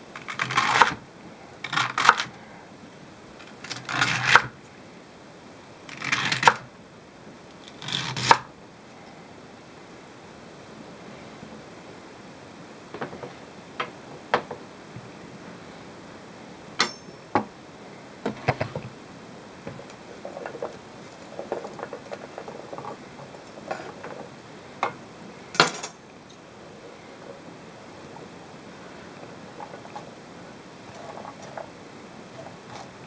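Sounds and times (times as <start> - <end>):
pieces scraped across board: 3.7 - 4.5.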